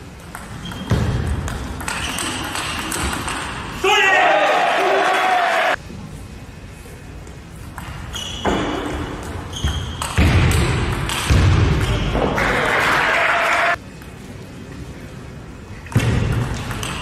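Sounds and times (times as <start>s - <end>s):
shoes squeaking on floor: 0.6s - 1.1s, 7.9s - 10.2s.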